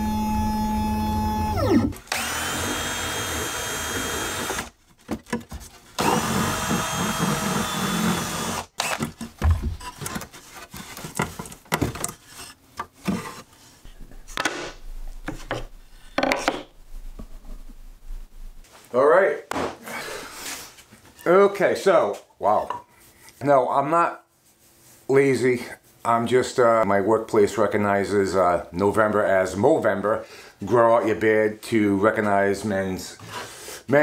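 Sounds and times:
cordless drill running: 0.0 - 4.7, 6.0 - 9.1
router spindle whining: 0.0 - 4.7, 6.0 - 9.1.

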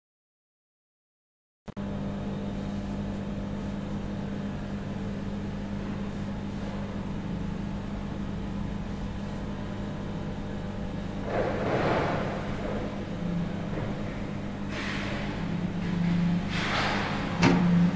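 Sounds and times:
machine humming: 1.8 - 17.9.

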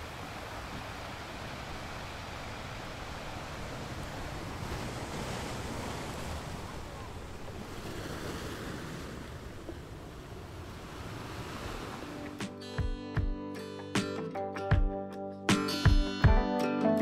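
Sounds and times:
rushing water: 0.0 - 12.4.

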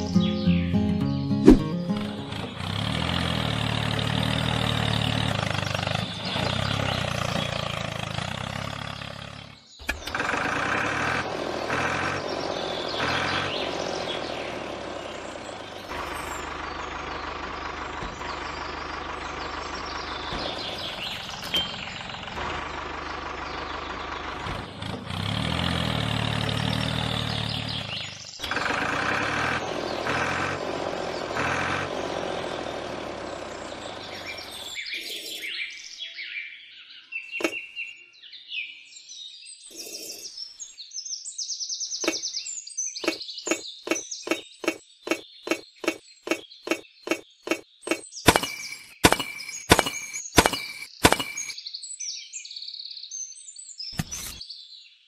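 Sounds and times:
tractor engine running: 0.0 - 34.8, 37.4 - 37.6, 42.0 - 42.3, 43.0 - 51.6
birds chirping: 0.0 - 55.0.

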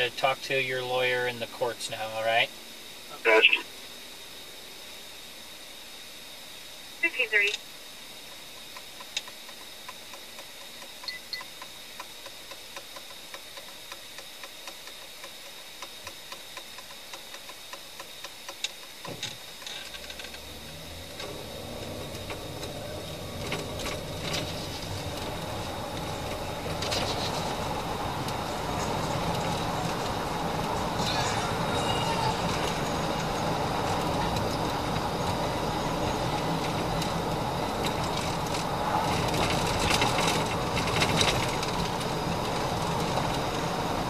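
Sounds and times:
car engine and tyre noise: 8.5 - 44.0
turn signal ticking: 20.1 - 44.0.

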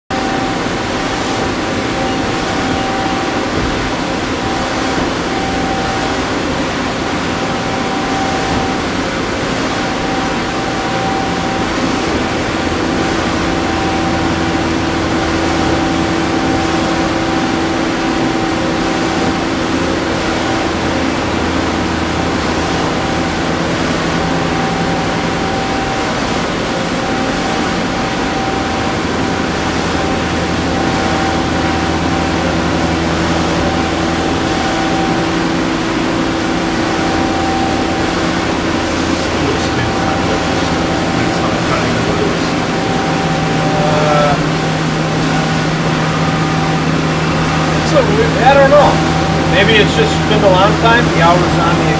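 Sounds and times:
high machine whine: 0.0 - 51.9
low machine hum: 0.0 - 51.9
machine whirring and hissing: 0.1 - 51.9.

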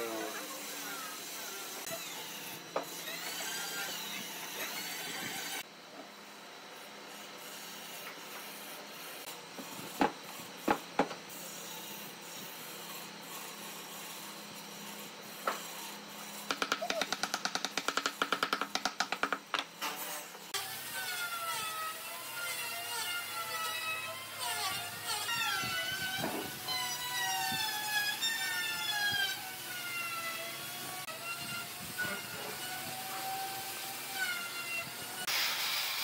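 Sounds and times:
wooden blocks knocking: 16.5 - 19.7.

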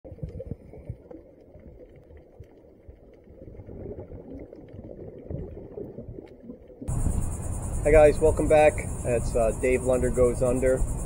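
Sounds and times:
exhaled bubbles: 0.0 - 6.9.

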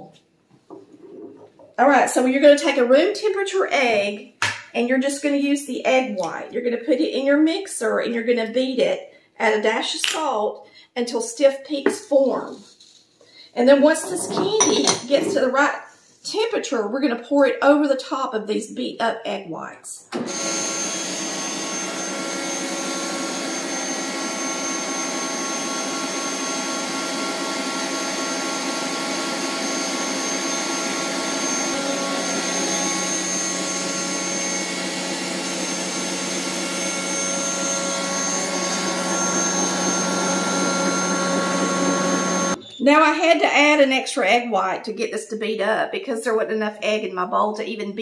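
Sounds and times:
electric stand mixer whisking: 20.2 - 42.6.

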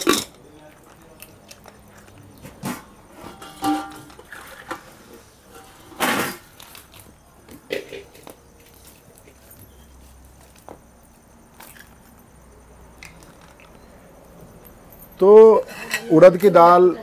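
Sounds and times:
cooking pots knocking and clanking: 0.0 - 9.8.

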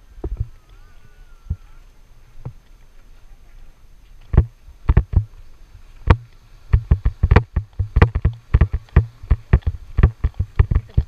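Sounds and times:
sharp knocks with dull thuds: 4.3 - 5.3, 6.1 - 11.0.

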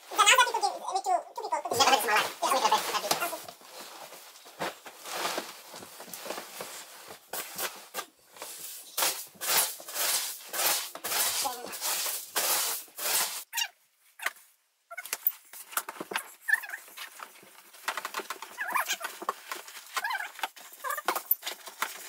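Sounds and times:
bedding rustling and swishing: 1.7 - 13.5.

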